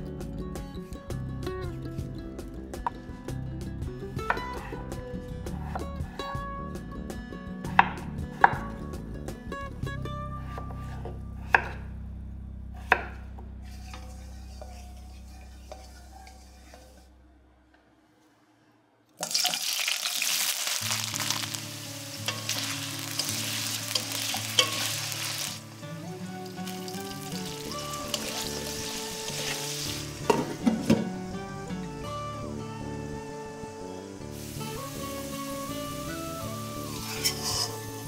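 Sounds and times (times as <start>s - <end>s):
knife chopping on wooden board: 11.5s - 11.8s
potatoes sizzling in hot oil: 19.2s - 30.3s, 34.3s - 38.0s.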